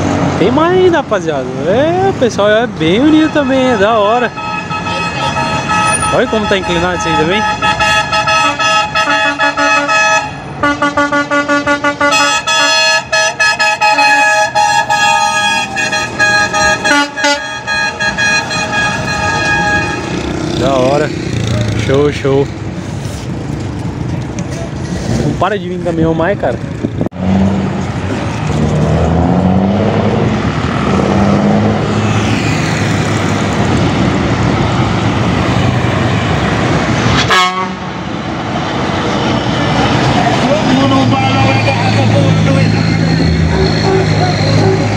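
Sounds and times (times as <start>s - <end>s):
passing truck engines rumbling: 0.0s - 44.9s
truck horns: 2.9s - 21.1s, 37.1s - 38.0s, 39.6s - 44.9s.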